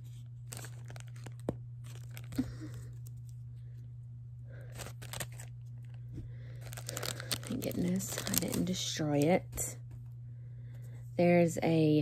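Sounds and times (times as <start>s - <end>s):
steady low hum: 0.0s - 12.0s
packaging crinkling and tearing: 0.1s - 3.4s, 4.6s - 9.6s.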